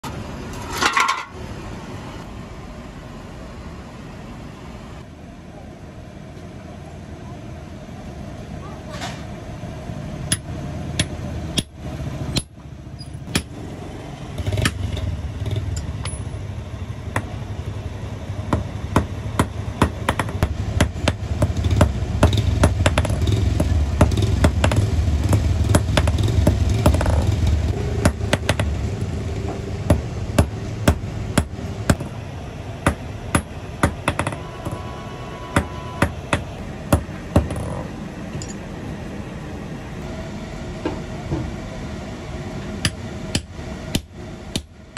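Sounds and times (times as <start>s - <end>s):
low mechanical rumble: 0.0s - 44.9s
hammer tapping metal on anvil: 10.3s - 13.5s.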